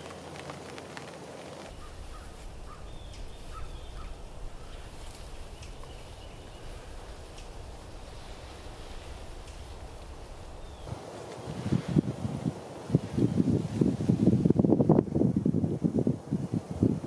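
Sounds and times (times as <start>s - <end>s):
steady low rumble: 1.6s - 13.5s
faint short bird calls: 1.7s - 7.6s
light ticks: 5.1s - 6.0s, 7.3s - 7.6s, 9.4s - 9.8s.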